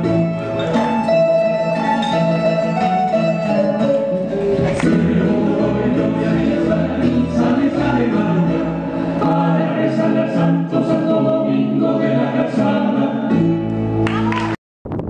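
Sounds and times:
instrumental folk accompaniment: 0.0 - 14.6
group of voices singing: 3.6 - 13.7.

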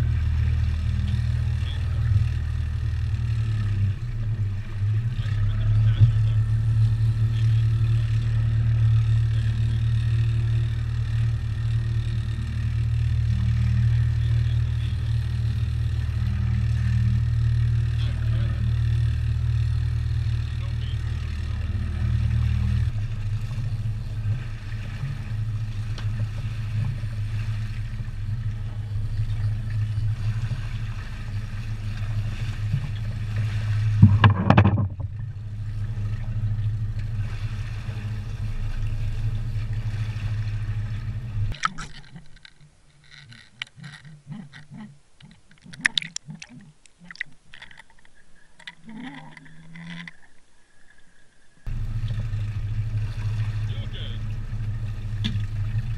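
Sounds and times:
boat motor humming: 0.0 - 55.9
scattered clicks: 41.5 - 50.3.

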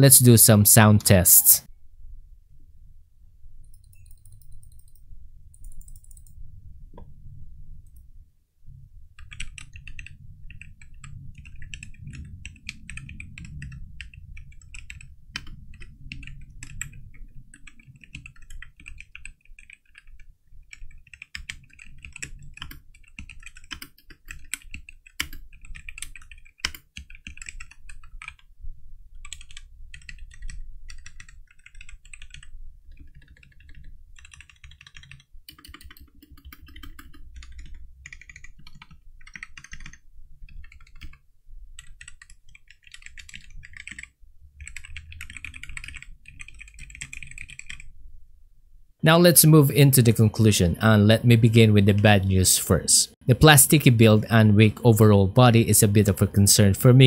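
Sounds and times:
mechanical keyboard keystrokes clacking: 29.3 - 41.2.

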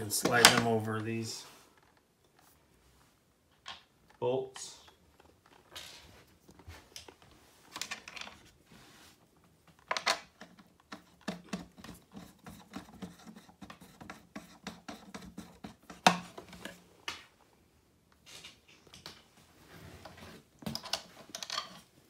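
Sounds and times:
wood and metal parts scraping: 19.6 - 22.0.

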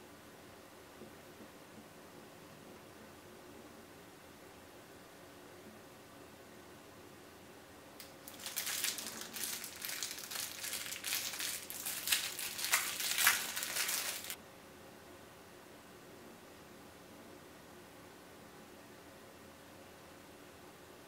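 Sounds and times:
plastic wrapper crinkling: 8.0 - 14.4.

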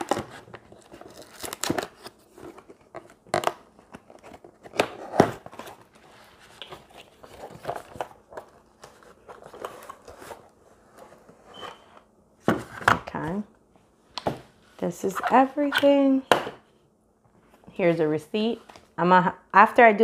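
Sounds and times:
cardboard and tissue paper rustling: 0.0 - 3.1, 3.8 - 11.6.

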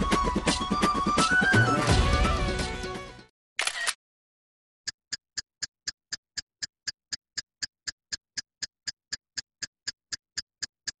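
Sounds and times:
sharp ticking: 4.9 - 11.0.

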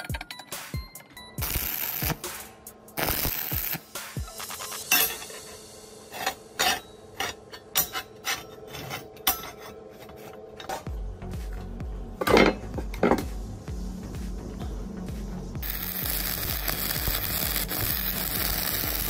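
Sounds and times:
steel plate scraping: 3.0 - 10.9.

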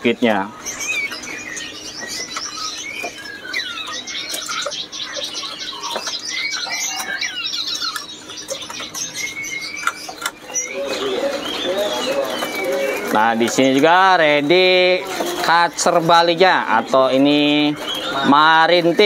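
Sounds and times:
songbirds chirping and whistling: 0.0 - 19.0
sharp clicks: 7.0 - 10.7.

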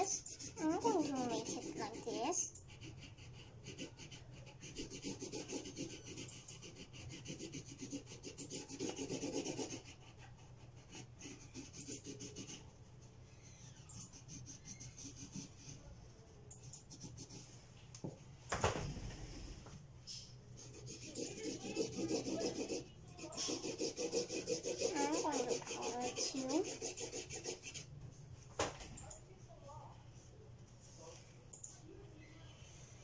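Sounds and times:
person speaking: 0.0 - 2.5, 20.6 - 27.2
marker scribbling on paper: 0.0 - 17.5, 20.6 - 27.9.

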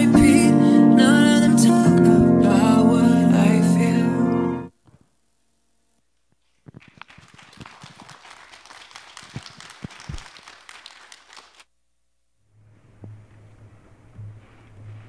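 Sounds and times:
crowd applauding: 6.7 - 11.7.

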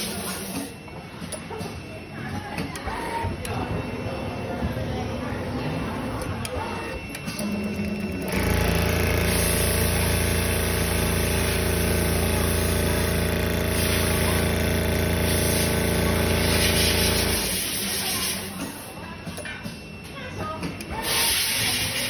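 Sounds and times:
sewing machine needle hum: 6.0 - 17.8.

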